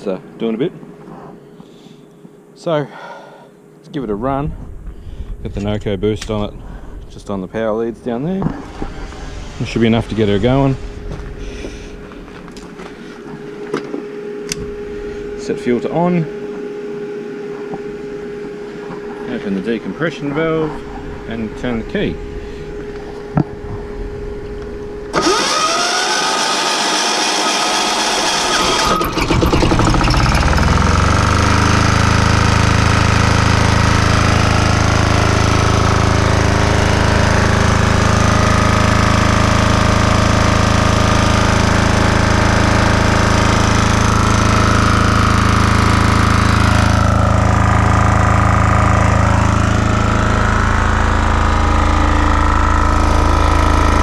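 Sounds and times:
diesel engine running: 4.0s - 54.0s
electric starter spinning: 17.8s - 54.0s.

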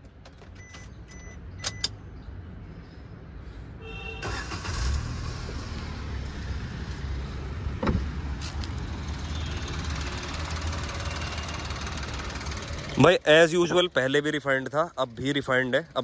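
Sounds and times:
car engine starting and idling: 4.2s - 16.0s.

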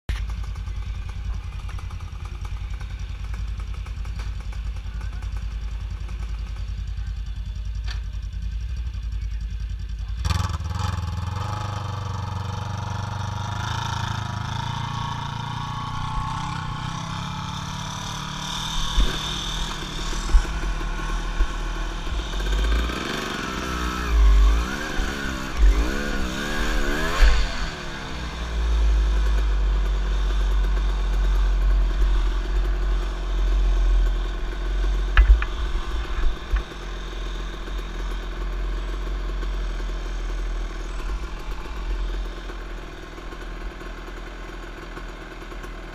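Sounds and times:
small off-road engine: 0.1s - 45.9s
thumps from rough ground: 18.8s - 22.2s, 35.1s - 36.8s.

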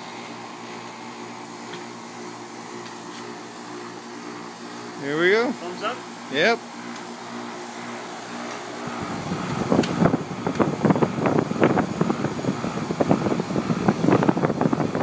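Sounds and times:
condenser fan air rush: 0.0s - 15.0s
steady electrical hum: 0.0s - 15.0s.

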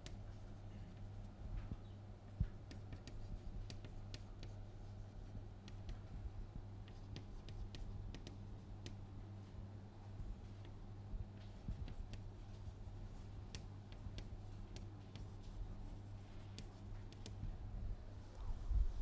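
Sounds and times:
chalk tapping and scratching: 0.0s - 6.2s, 6.8s - 9.6s, 11.4s - 17.6s
low electrical hum: 0.0s - 19.0s.

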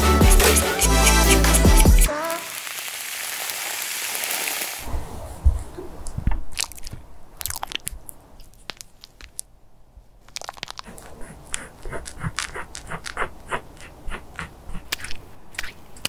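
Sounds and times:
lipstick being crushed: 6.5s - 9.5s, 10.2s - 10.9s
craft knife shaving pencil: 10.8s - 15.8s.

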